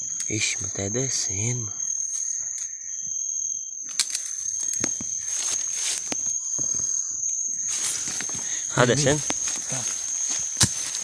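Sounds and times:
high-pitched insect trill: 0.0s - 11.0s
rustling in dry leaf litter: 7.7s - 11.0s.

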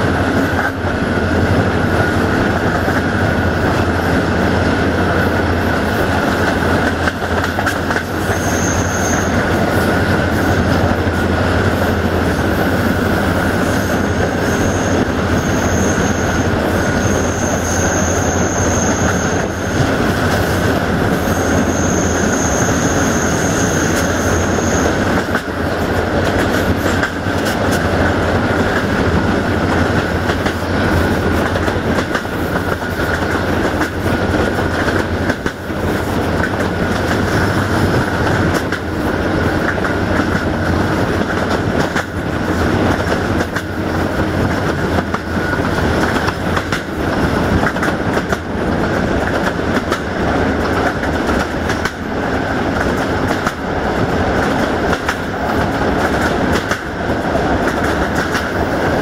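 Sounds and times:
train wheels rumbling on rails: 0.0s - 59.0s
high-pitched wheel squeal: 8.1s - 9.6s, 13.6s - 19.9s, 21.1s - 25.2s.

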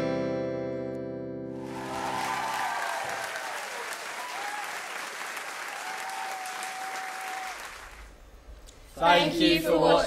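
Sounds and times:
audience applause: 1.6s - 8.2s.

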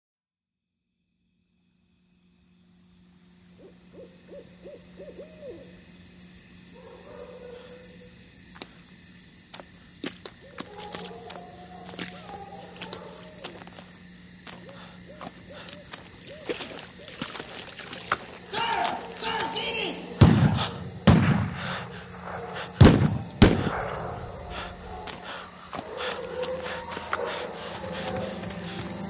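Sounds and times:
insect chorus: 0.4s - 29.0s
repeated hooting calls: 3.5s - 5.9s, 14.5s - 17.6s, 18.3s - 29.0s.

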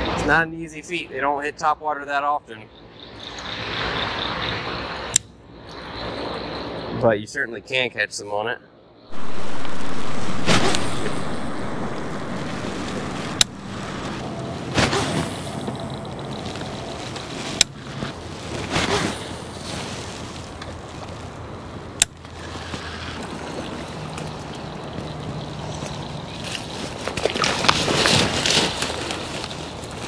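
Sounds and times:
wind noise on microphone: 9.1s - 19.7s.

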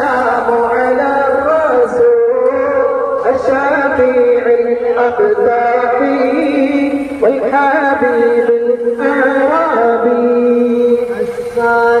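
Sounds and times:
person chanting devotional song: 0.0s - 12.0s.

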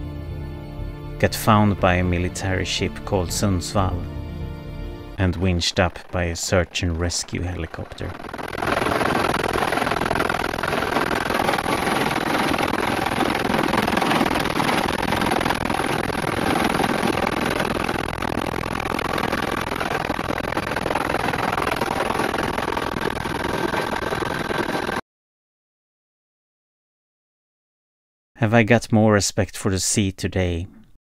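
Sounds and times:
engine running loudly: 5.2s - 25.0s.

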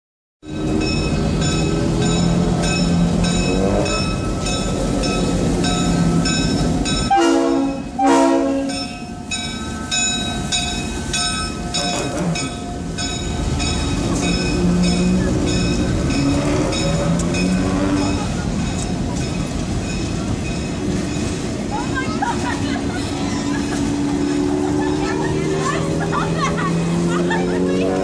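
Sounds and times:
crossing bell ringing: 0.4s - 28.0s
diesel locomotive running: 0.4s - 28.0s
train horn blasts: 7.0s - 8.9s.

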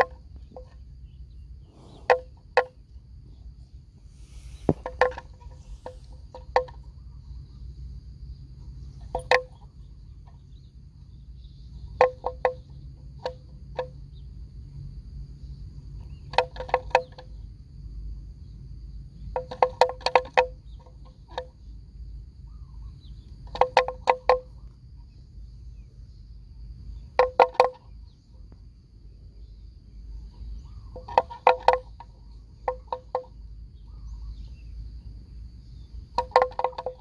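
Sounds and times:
high insect drone: 0.0s - 37.0s
low wind rumble: 0.3s - 9.0s.

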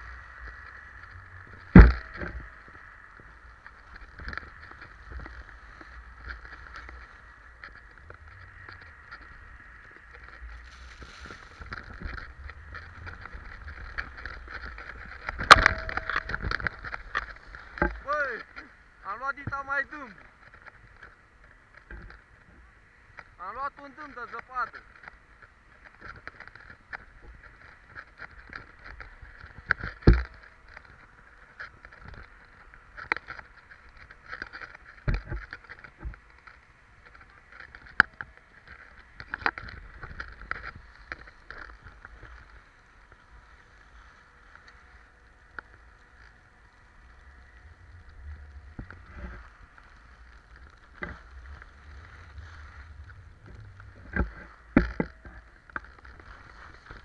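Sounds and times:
skis scraping on snow: 0.0s - 22.4s, 38.3s - 57.0s
wind rumble on microphone: 0.0s - 23.5s, 24.3s - 57.0s
sharp knocks and bumps: 11.0s - 18.0s.

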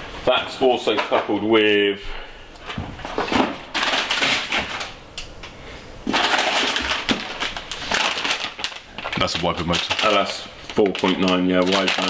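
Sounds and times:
cardboard and plastic packaging rustling: 2.7s - 5.0s, 6.0s - 12.0s.

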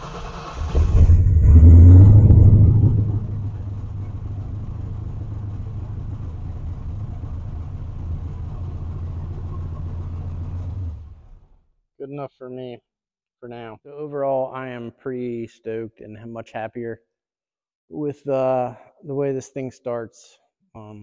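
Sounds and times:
car engine starting and idling: 0.0s - 11.6s.

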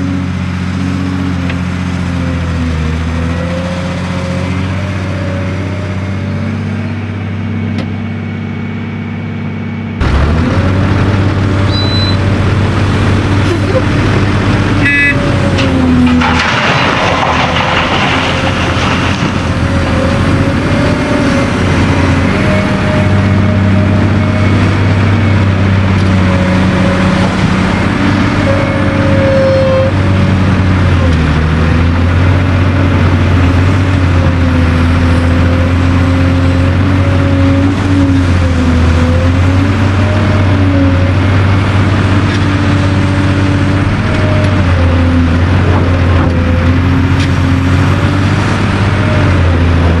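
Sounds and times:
excavator diesel engine under load: 0.0s - 50.0s
rough noisy burst: 12.3s - 22.3s.

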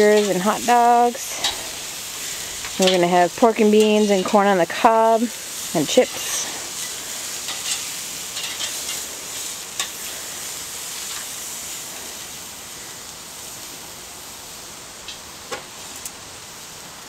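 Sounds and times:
meat sizzling on a grill: 0.0s - 17.0s
metal tongs clicking on grate: 7.5s - 9.0s, 9.8s - 10.0s.

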